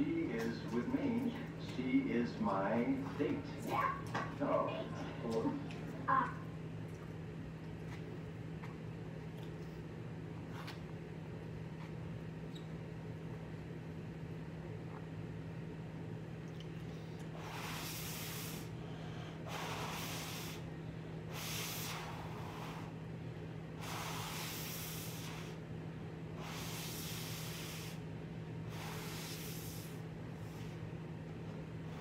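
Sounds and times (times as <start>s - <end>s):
steady low hum: 0.0s - 32.0s
person breathing hard through nose: 17.0s - 23.0s, 23.8s - 25.6s, 26.4s - 30.8s.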